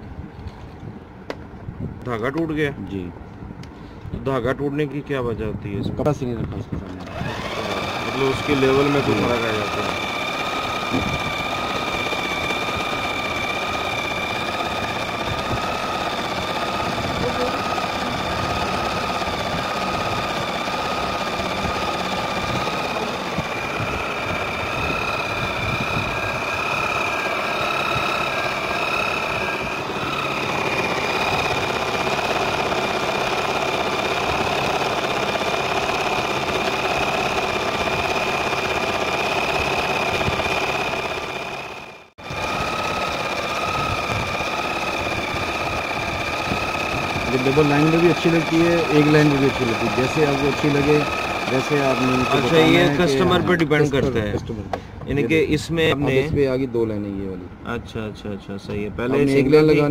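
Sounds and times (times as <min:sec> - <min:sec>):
sewing machine running: 0:06.9 - 0:54.0.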